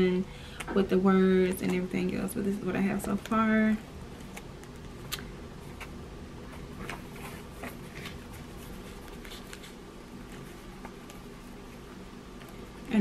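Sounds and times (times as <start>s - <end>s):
low room hum: 0.0s - 13.0s
paper rustling: 6.8s - 11.3s.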